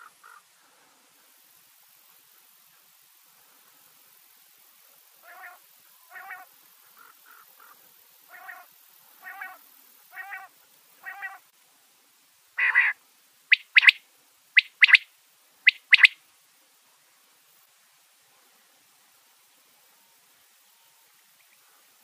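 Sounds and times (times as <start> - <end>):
quail calling: 0.0 - 0.4, 5.2 - 11.4, 12.6 - 14.0, 14.6 - 16.2.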